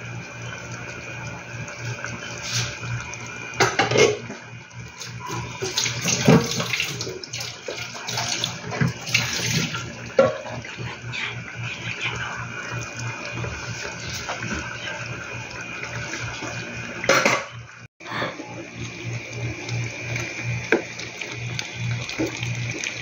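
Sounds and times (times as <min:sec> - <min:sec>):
sauce bubbling in a pan: 0:00.0 - 0:05.6, 0:18.4 - 0:23.0.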